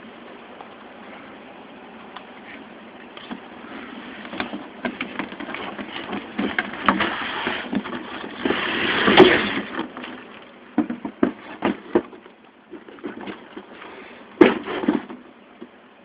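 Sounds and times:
knocks and rustles: 0:03.2 - 0:15.8
cardboard boxes scraping: 0:03.3 - 0:10.3, 0:10.9 - 0:15.3.

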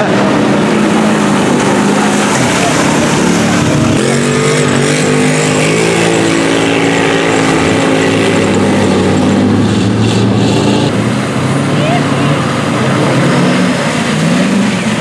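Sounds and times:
quad bike engine revving: 0:00.0 - 0:15.0.

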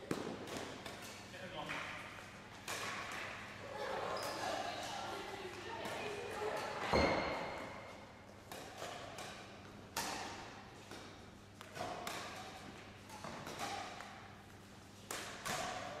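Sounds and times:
racket hitting shuttlecock: 0:00.0 - 0:01.2, 0:02.5 - 0:03.5, 0:04.3 - 0:16.0.

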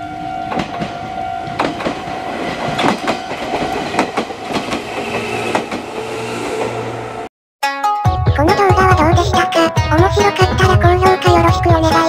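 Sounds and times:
train wheels clattering over rail joints: 0:00.5 - 0:06.0.

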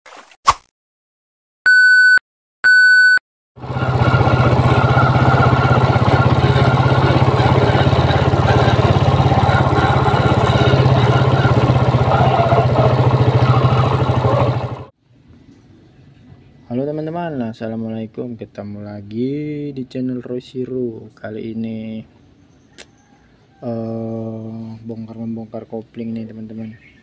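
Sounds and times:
short electronic beeps: 0:01.7 - 0:03.2
motorcycle engine running with whine: 0:03.6 - 0:14.9.

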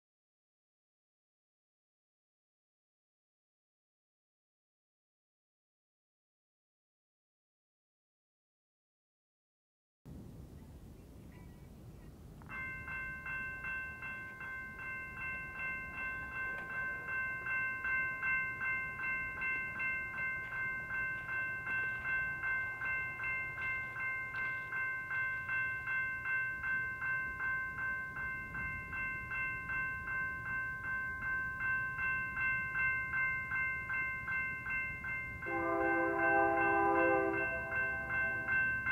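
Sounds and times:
railroad crossing bell ringing: 0:12.4 - 0:38.9.

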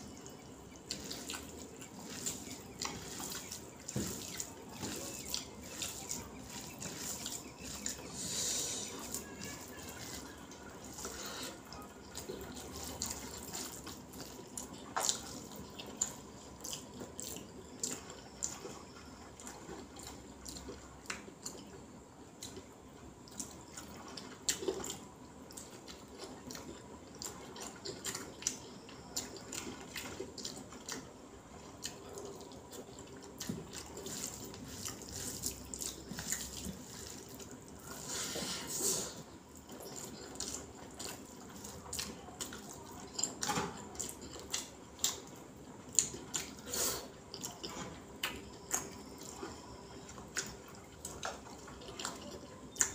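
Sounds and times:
fingers mixing rice: 0:00.0 - 0:21.7, 0:23.3 - 0:52.9
man chewing: 0:00.0 - 0:21.8, 0:22.4 - 0:52.9.

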